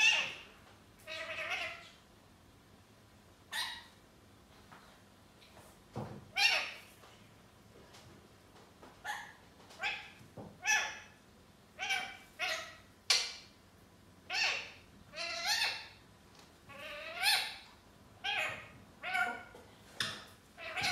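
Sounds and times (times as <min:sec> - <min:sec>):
parakeet calling: 0:00.0 - 0:02.0, 0:03.5 - 0:04.0, 0:06.3 - 0:06.9, 0:09.0 - 0:11.2, 0:11.8 - 0:13.4, 0:14.3 - 0:16.0, 0:16.7 - 0:19.5, 0:20.6 - 0:20.9.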